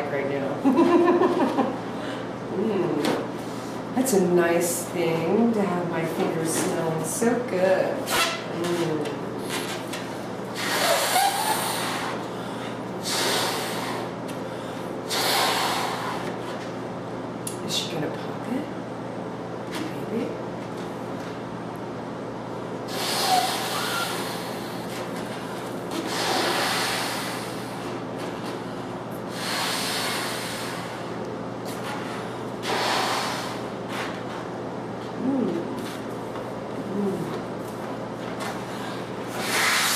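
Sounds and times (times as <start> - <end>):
person blowing up balloon: 10.5 - 12.3, 13.0 - 14.2, 15.1 - 16.3, 22.9 - 25.1, 25.9 - 28.0, 29.3 - 31.2, 32.6 - 34.2, 39.3 - 39.9.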